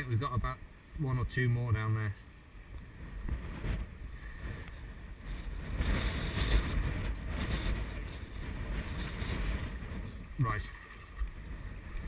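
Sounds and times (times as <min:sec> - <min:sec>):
wind buffeting microphone: 0:02.5 - 0:12.0
water sloshing from wading: 0:03.1 - 0:12.0.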